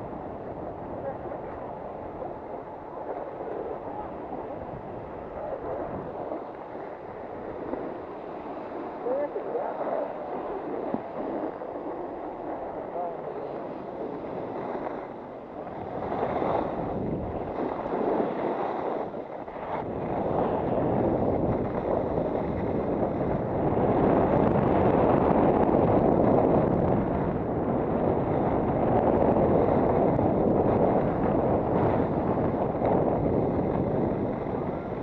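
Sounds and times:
wind rushing over microphone: 0.0s - 35.0s
skis sliding over packed snow: 5.2s - 27.0s.

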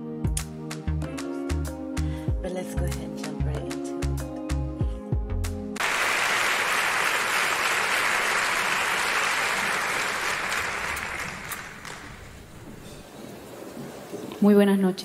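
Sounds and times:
music: 0.0s - 5.8s
audience applauding: 5.8s - 12.6s.

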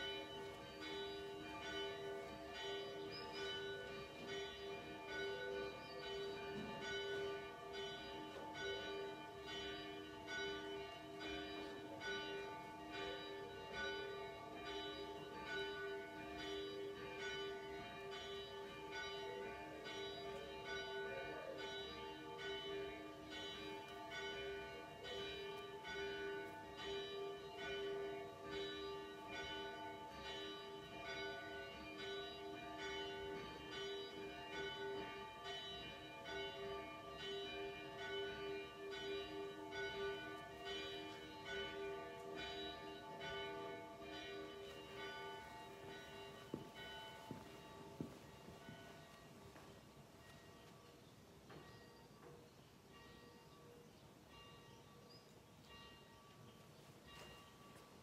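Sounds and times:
church bells ringing: 0.0s - 58.0s.

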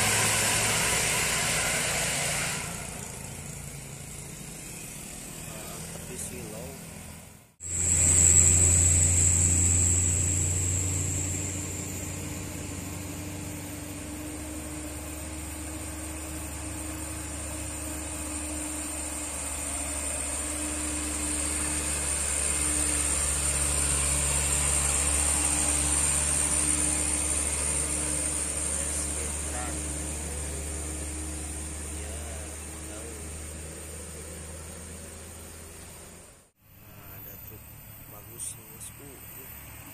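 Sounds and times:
truck engine pulling uphill: 0.0s - 39.9s
motorcycles passing: 21.2s - 34.5s.

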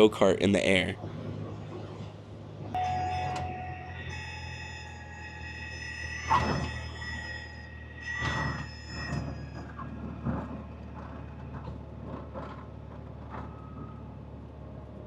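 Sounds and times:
ringing tone: 2.8s - 10.8s
knocks and rattles: 8.2s - 14.0s.

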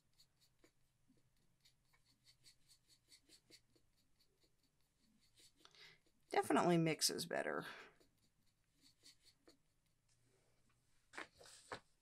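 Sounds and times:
paintbrush scratching in palette: 0.0s - 6.6s, 7.8s - 10.0s.

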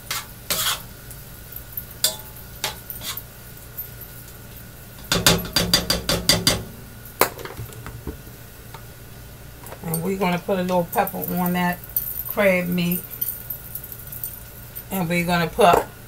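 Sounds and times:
spoon scraping a pan: 0.0s - 0.9s, 2.0s - 3.3s.

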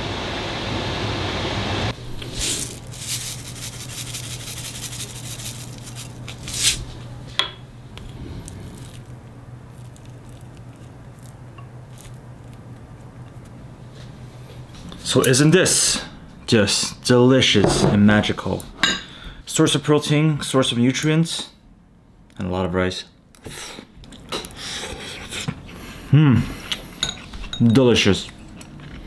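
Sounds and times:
steady rushing kitchen noise: 0.0s - 9.1s
low steady hum: 0.0s - 23.4s.

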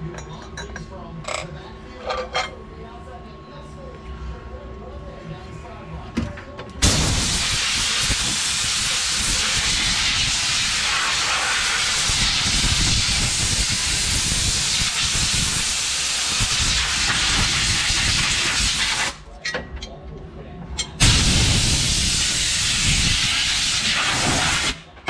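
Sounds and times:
air blow gun hissing: 6.8s - 19.2s, 21.0s - 24.8s.

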